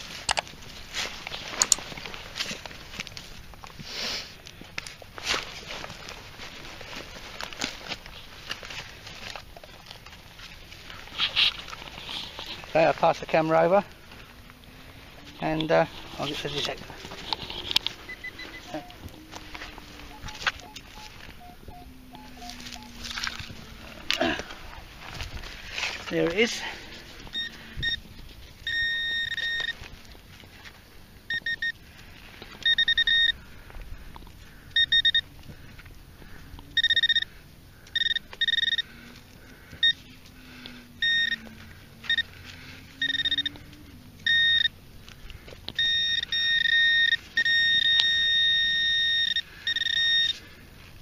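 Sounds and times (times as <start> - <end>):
metal detector alert tone: 15.4 - 23.4, 27.3 - 28.0, 28.6 - 29.9, 31.3 - 31.8, 32.6 - 33.4, 34.8 - 35.3, 36.7 - 37.3, 37.9 - 38.9, 39.8 - 40.1, 41.0 - 42.3, 43.0 - 43.6, 44.2 - 44.8, 45.8 - 50.4.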